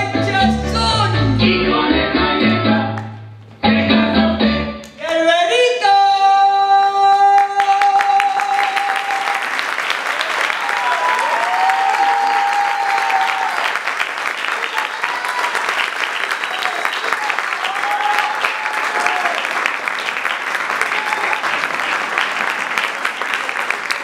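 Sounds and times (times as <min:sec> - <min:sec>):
backing track music: 0:00.0 - 0:05.7
audience applause: 0:07.4 - 0:24.0.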